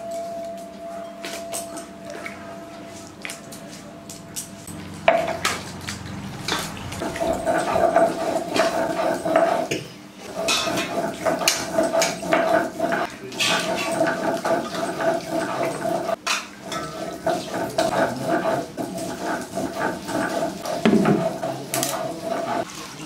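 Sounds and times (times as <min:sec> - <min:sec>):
stone scraping on stone slab: 0:07.0 - 0:22.6.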